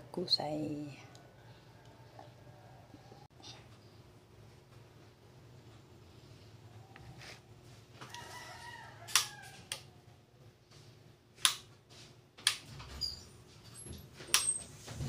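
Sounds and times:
rooster crowing: 1.3s - 3.3s, 8.0s - 10.1s.

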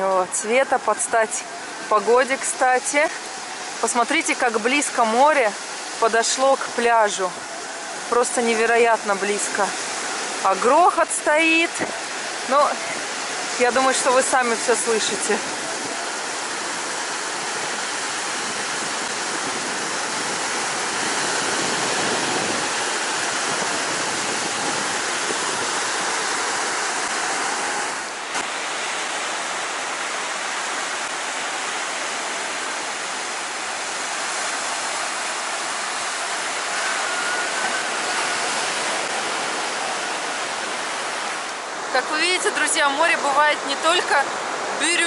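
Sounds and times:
surf waves roaring: 0.0s - 45.0s.

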